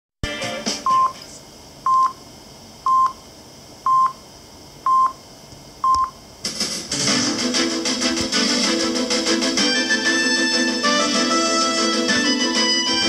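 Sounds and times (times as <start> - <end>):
music from radio: 0.2 - 1.4, 6.4 - 13.0
radio time signal beeps: 0.8 - 1.2, 4.9 - 5.2.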